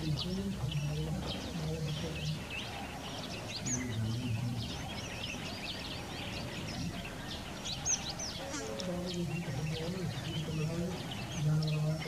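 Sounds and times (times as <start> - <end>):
outdoor background noise: 0.0 - 12.0
small birds chirping: 0.0 - 12.0.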